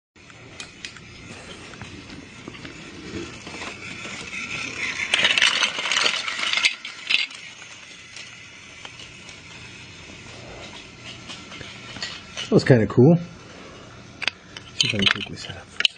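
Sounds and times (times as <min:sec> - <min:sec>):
toy trains clattering on track: 0:00.2 - 0:12.9, 0:14.0 - 0:15.9
toy trains crashing: 0:00.3 - 0:12.7, 0:14.2 - 0:15.9.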